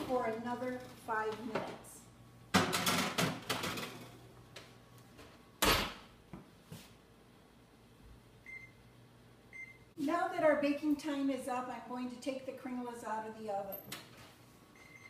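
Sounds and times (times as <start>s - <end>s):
microwave keypad beep: 8.4s - 8.8s, 9.5s - 9.9s, 14.8s - 15.0s.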